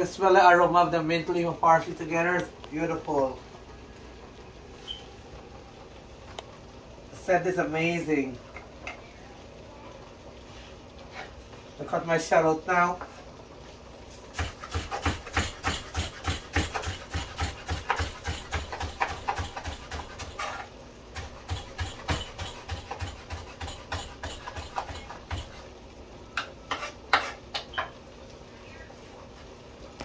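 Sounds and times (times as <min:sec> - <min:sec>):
knife chopping on cutting board: 0:14.4 - 0:20.6, 0:21.2 - 0:25.6.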